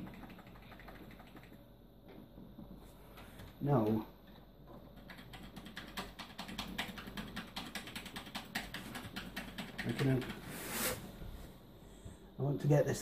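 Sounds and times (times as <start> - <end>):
keyboard key clicking rapidly: 0.0 - 1.7, 5.0 - 10.4.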